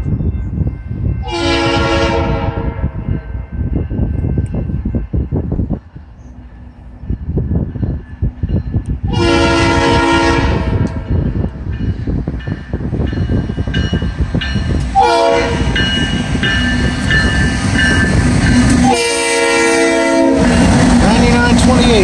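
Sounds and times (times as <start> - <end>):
locomotive air horn: 1.2 - 3.0, 9.1 - 11.0, 15.0 - 15.8, 18.8 - 20.7
engine and wheels rumbling: 1.9 - 22.0.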